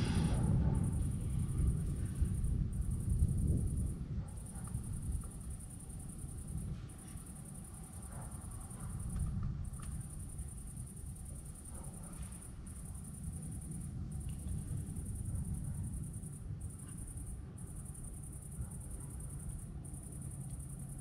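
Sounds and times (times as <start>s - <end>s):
low rumbling noise: 0.0s - 4.2s
crickets trilling: 0.0s - 21.0s.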